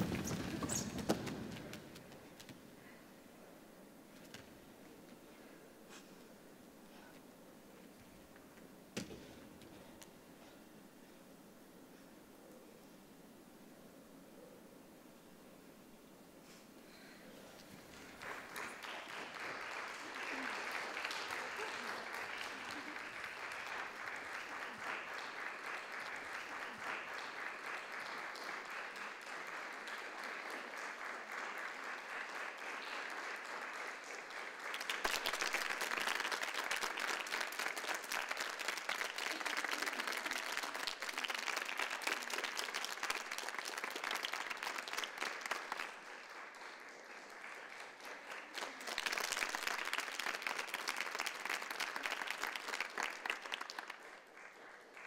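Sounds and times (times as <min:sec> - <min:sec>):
audience applauding: 0:00.0 - 0:02.0, 0:17.9 - 0:55.0.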